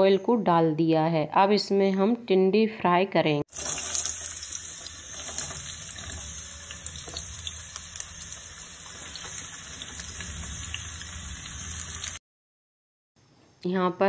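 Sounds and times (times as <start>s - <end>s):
vegetables sizzling in hot oil: 3.5s - 12.2s.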